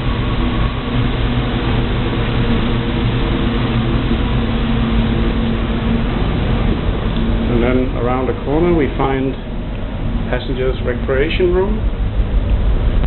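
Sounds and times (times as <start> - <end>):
ship engine machinery hum: 0.0 - 13.0
ventilation rushing noise: 0.0 - 13.0.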